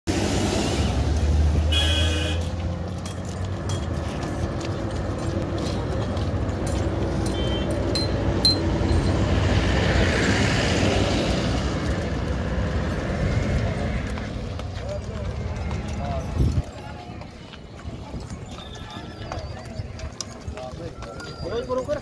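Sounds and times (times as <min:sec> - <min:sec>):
traffic engine rumble: 0:00.1 - 0:22.0
vehicle horn: 0:01.6 - 0:02.6, 0:07.3 - 0:07.8
short high horn toot: 0:01.7 - 0:02.6.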